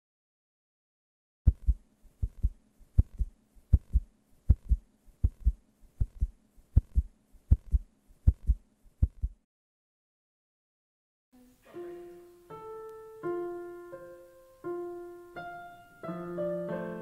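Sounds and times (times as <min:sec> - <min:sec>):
heartbeat thumps: 0:01.5 - 0:09.4
faint steady hum: 0:11.4 - 0:16.9.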